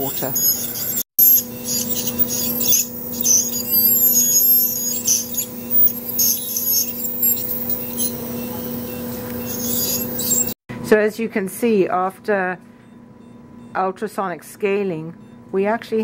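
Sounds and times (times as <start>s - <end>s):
dental scaler squealing: 0.0s - 10.6s.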